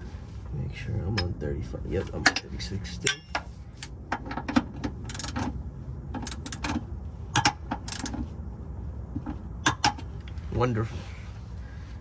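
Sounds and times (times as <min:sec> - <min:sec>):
torque wrench clicking: 0:05.0 - 0:05.5.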